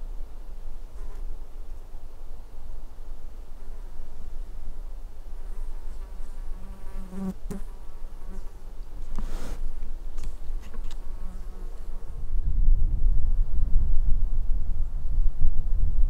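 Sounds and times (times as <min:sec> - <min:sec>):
flying insect buzzing: 0:05.5 - 0:08.6, 0:10.8 - 0:12.3
brief rustle: 0:08.9 - 0:11.1.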